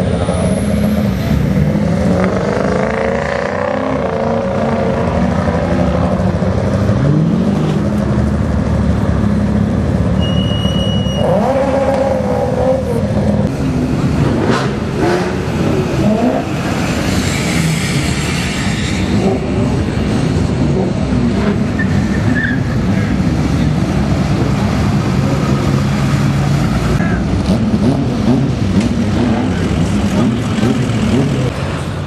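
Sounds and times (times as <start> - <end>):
pickup truck engines running: 13.0 - 32.0.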